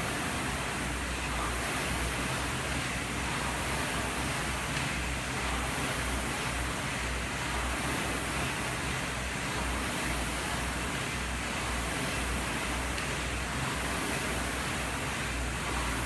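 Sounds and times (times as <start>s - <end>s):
rowing machine fan whooshing: 0.0s - 16.0s.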